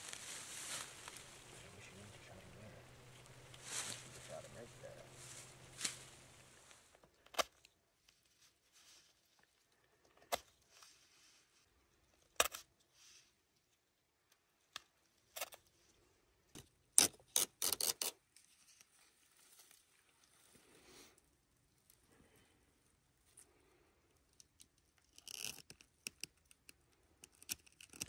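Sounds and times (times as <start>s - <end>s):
paper rustling and scraping: 0.0s - 2.4s, 3.0s - 6.8s.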